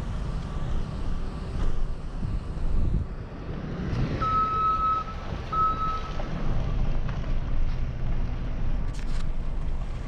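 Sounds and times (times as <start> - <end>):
low vehicle rumble: 0.0 - 10.0
reversing alarm beeping: 4.2 - 6.2.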